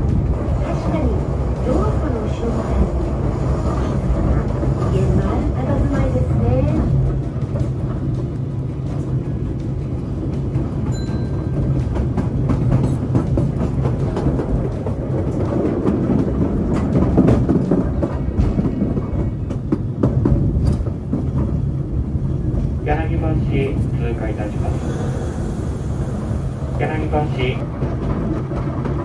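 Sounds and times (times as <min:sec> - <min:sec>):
train wheels rumbling on track: 0:00.0 - 0:29.0.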